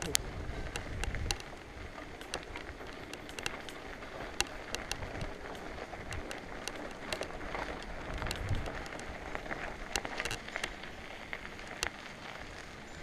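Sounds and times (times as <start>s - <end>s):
bike tyres rolling on gravel: 0.0s - 13.0s
stones clicking: 2.1s - 10.8s.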